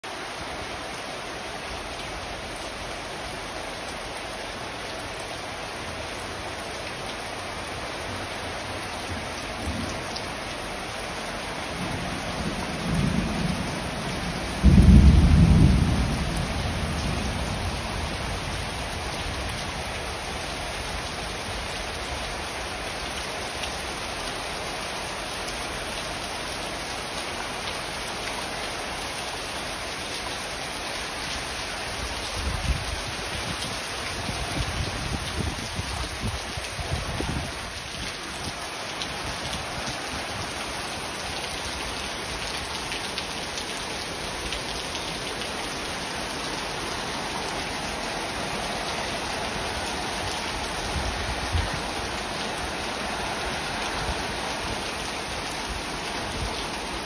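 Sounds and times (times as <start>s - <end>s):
heavy rain pouring: 0.0s - 57.0s
thunder rumbling: 11.8s - 18.2s
loud thunderclap: 14.6s - 16.3s.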